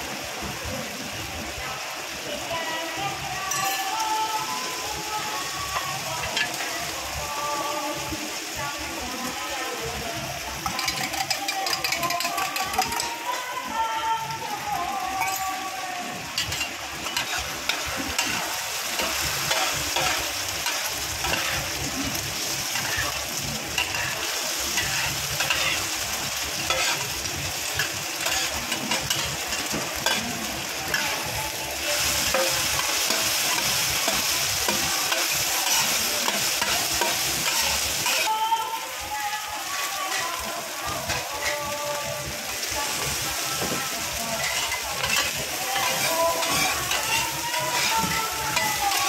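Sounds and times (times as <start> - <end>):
food sizzling on a pan: 0.0 - 49.0
metal spatulas scraping a pan: 10.6 - 13.2, 16.4 - 21.8, 22.8 - 23.2, 23.8 - 25.9, 26.6 - 27.2, 27.8 - 30.3, 32.2 - 38.3, 44.4 - 49.0.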